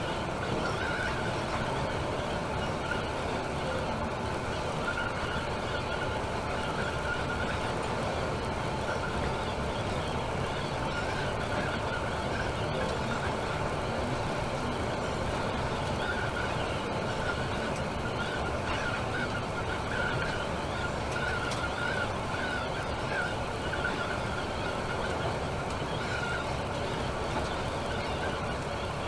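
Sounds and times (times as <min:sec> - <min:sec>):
coach engine and road noise: 0:00.0 - 0:29.0.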